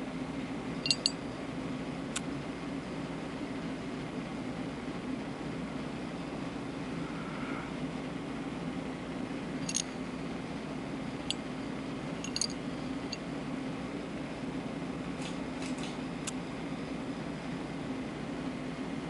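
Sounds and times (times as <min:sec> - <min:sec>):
low room hum: 0:00.0 - 0:19.0
metallic pendant ticks: 0:00.8 - 0:01.2, 0:12.2 - 0:12.6.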